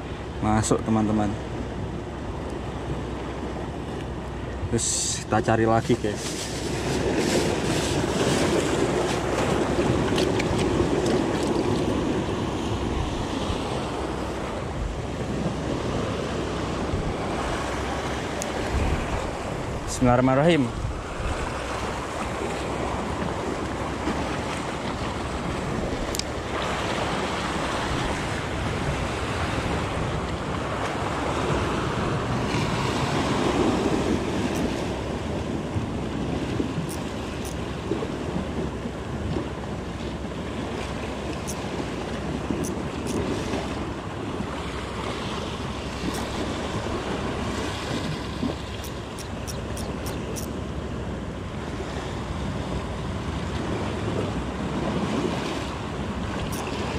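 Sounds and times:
wind on microphone: 0:06.3 - 0:20.0, 0:20.6 - 0:56.9
faint ticks: 0:48.7 - 0:50.5.

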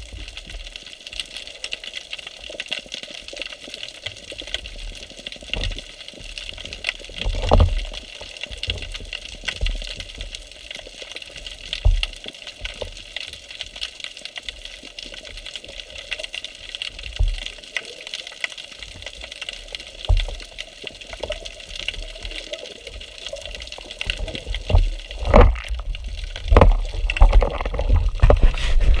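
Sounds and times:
underwater hiss and crackling: 0:00.0 - 0:29.0
low thuds of water: 0:24.0 - 0:29.0.

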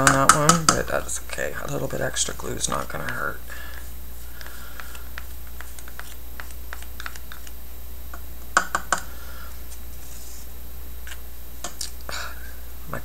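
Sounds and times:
stick and spoon tapping a cup: 0:00.0 - 0:00.8, 0:08.6 - 0:09.1.

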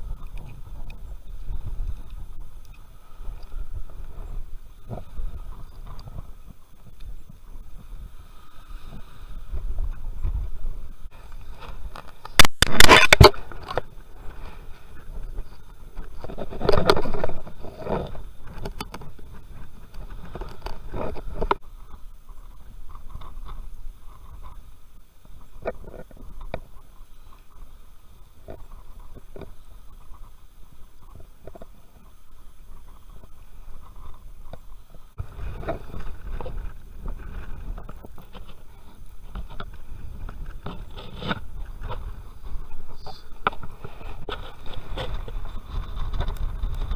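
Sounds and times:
wind rumble on microphone: 0:00.0 - 0:12.4, 0:32.8 - 0:46.9.

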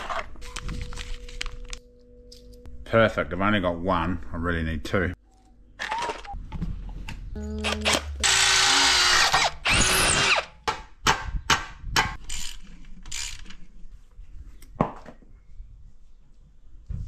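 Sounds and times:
cordless drill running: 0:08.2 - 0:10.5.

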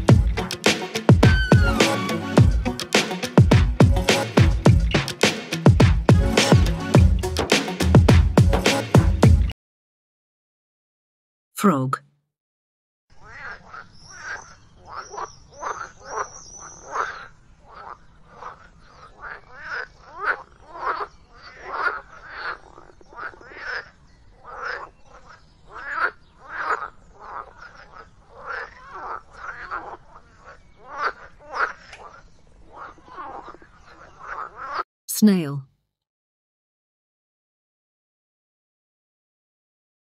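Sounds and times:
frogs croaking: 0:13.1 - 0:34.8.

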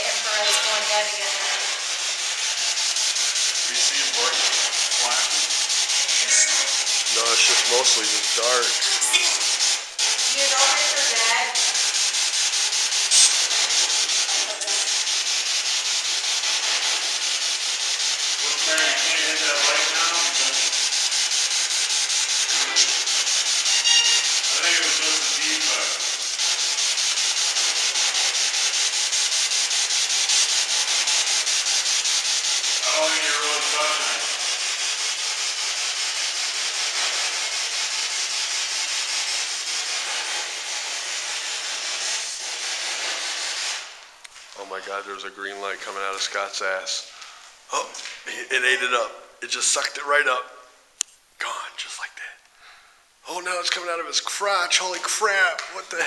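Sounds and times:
voice fragments: 0:00.0 - 0:01.7, 0:03.7 - 0:09.6, 0:13.1 - 0:13.5, 0:18.4 - 0:20.6
chopped radio static hiss: 0:03.4 - 0:11.4, 0:18.4 - 0:20.6.

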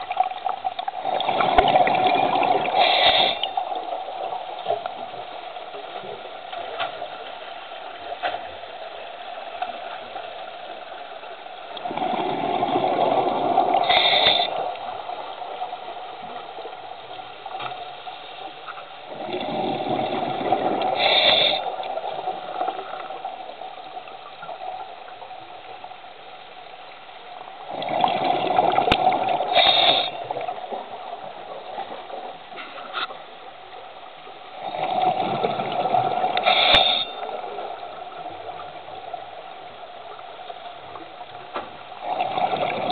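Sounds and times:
steady underwater hum: 0:00.0 - 0:42.9
exhaled breath bubbling underwater: 0:11.8 - 0:14.8, 0:19.1 - 0:21.9.

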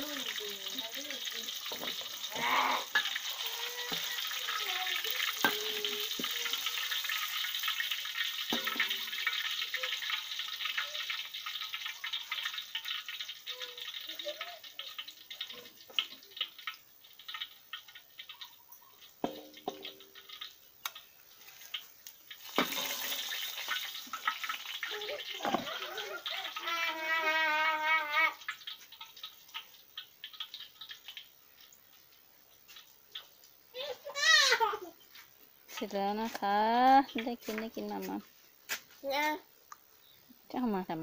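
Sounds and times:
oil sizzling in a wok: 0:00.0 - 0:41.0
metal spatula scraping a wok: 0:22.5 - 0:23.8.

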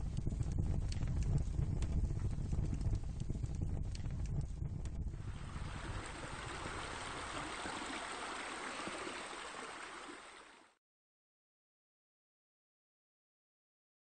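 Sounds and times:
water pouring into a pool: 0:05.2 - 0:10.8.

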